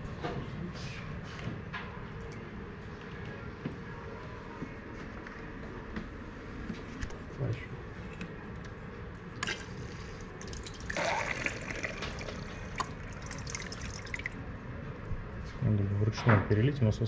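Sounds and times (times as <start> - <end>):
water sloshing and dripping: 9.4 - 14.4.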